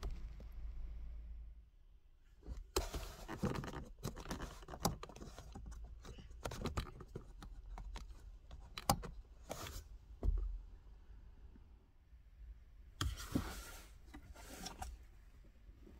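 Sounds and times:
small plastic clicks and knocks: 2.7s - 9.2s.

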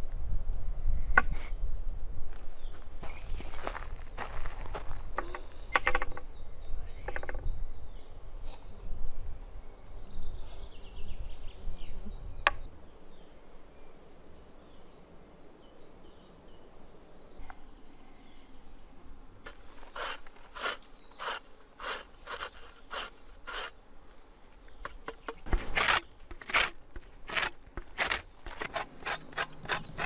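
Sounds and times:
wooden bowls knocking and clicking: 5.2s - 6.2s, 7.0s - 7.4s.

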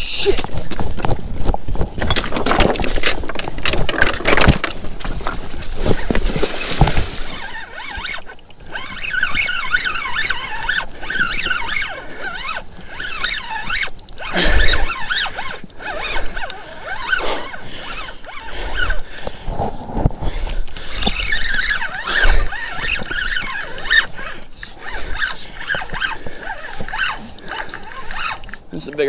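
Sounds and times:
fishing reel drag whining: 5.2s - 19.8s, 20.7s - 29.0s.

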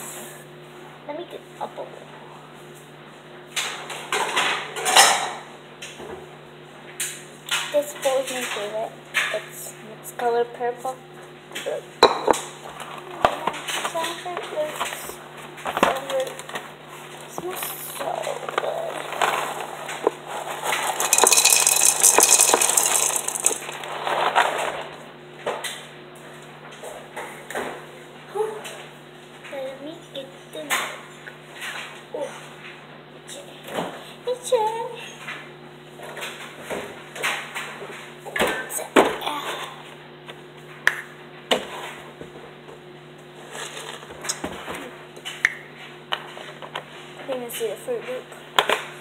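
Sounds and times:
cereal rattling in a box: 18.4s - 24.8s.

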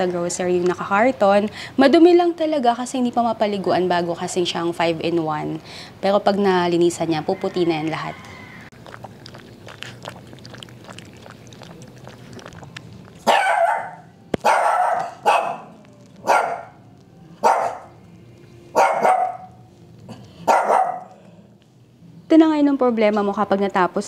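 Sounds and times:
dog barking: 13.2s - 16.8s, 17.4s - 17.9s, 18.7s - 19.6s, 20.4s - 21.2s.

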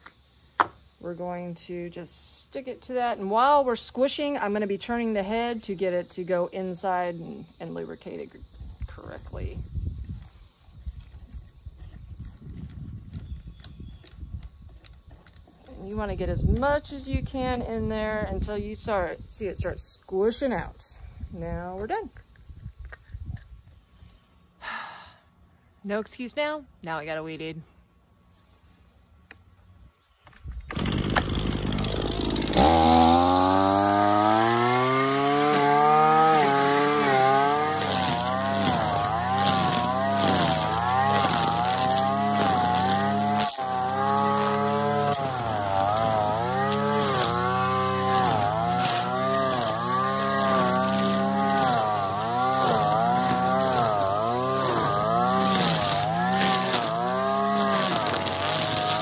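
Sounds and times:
string trimmer engine revving: 30.7s - 59.0s.

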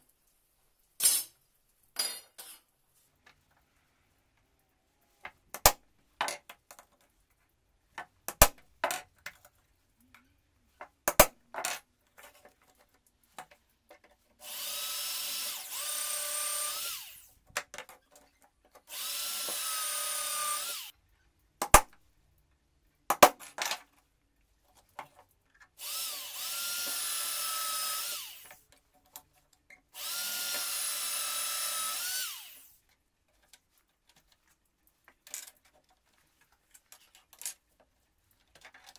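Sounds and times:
electric drill whining: 14.4s - 17.3s, 18.9s - 20.9s, 25.8s - 28.6s, 30.0s - 32.8s.

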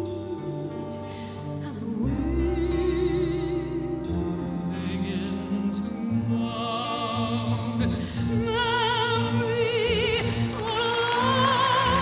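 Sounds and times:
instrumental accompaniment: 0.0s - 12.0s
operatic singing with vibrato: 0.0s - 12.0s.

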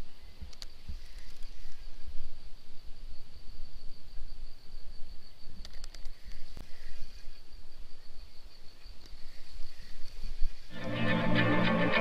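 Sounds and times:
high-pitched insect drone: 3.2s - 12.0s.

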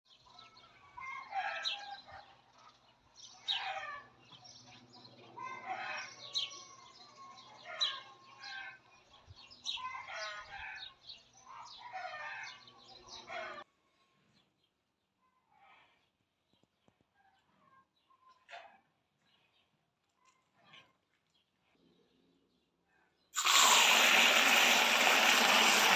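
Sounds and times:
chickens calling: 3.4s - 4.2s, 9.7s - 13.7s.

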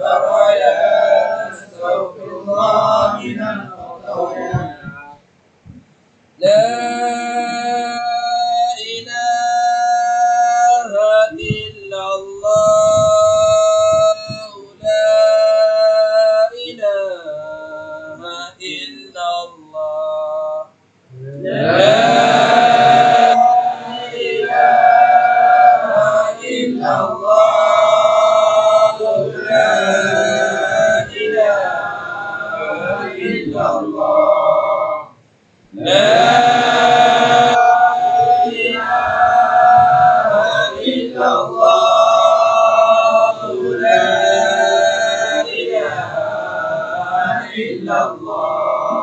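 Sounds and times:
group of men chanting: 0.0s - 5.0s, 21.2s - 35.0s, 35.7s - 49.0s
man chanting solo: 0.0s - 5.2s, 6.4s - 35.1s.

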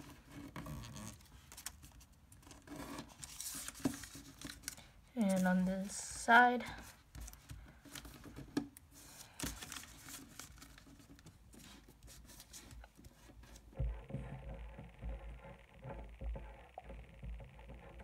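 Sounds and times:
paper rustling and crinkling: 0.0s - 5.9s, 6.8s - 13.8s
soft low knocks: 13.8s - 18.0s.

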